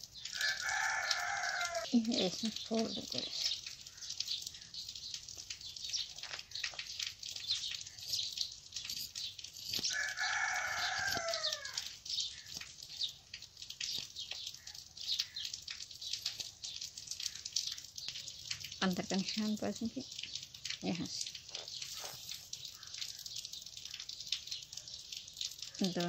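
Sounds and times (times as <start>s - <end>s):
high ticks and rustles: 0.0s - 26.0s
rooster crowing: 0.3s - 1.9s, 9.9s - 11.9s.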